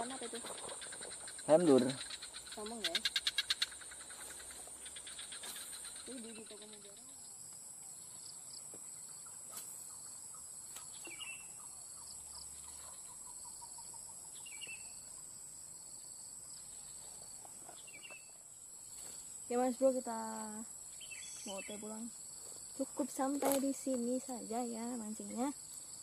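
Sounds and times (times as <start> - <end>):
insects chorus: 0.0 - 26.0
bird chirping call: 9.1 - 15.0, 17.7 - 18.4, 20.9 - 22.1.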